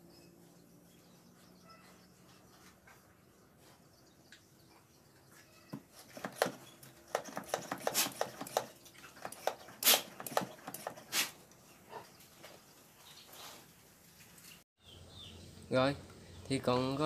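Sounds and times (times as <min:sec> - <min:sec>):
pump sprayer clicks and knocks: 0:06.1 - 0:11.0.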